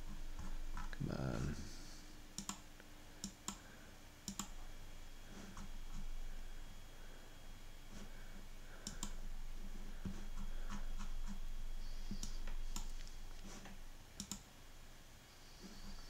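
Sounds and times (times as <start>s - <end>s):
faint steady hum: 0.0s - 16.0s
computer mouse clicks: 2.4s - 4.6s, 8.8s - 9.2s, 10.4s - 11.4s, 12.0s - 14.5s.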